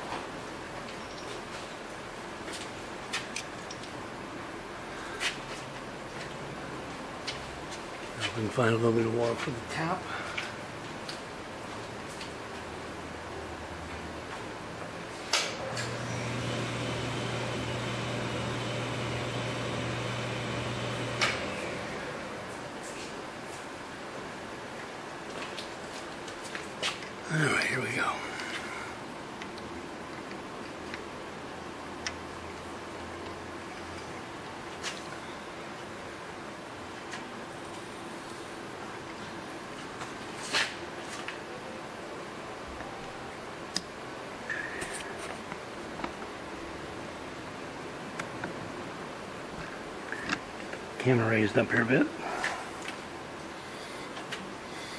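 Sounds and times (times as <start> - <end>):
electric motor humming: 15.8 - 22.5.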